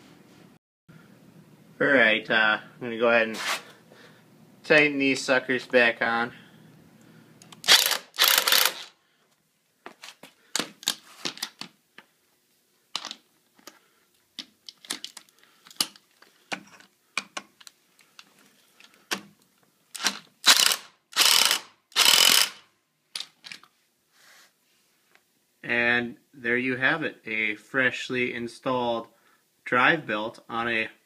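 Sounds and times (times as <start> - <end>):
impact driver hammering bolts: 7.7 - 8.9, 20.0 - 22.6.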